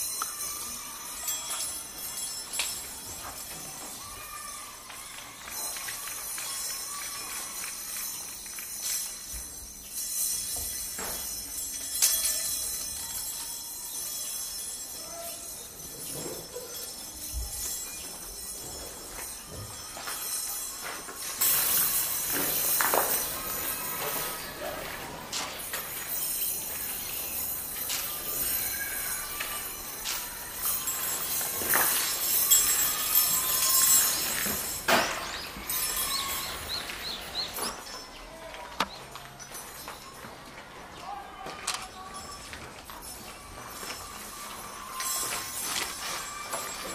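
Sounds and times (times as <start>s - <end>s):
metal chopsticks jangling: 5.7s - 38.4s
metal chopsticks clinking: 10.4s - 18.0s.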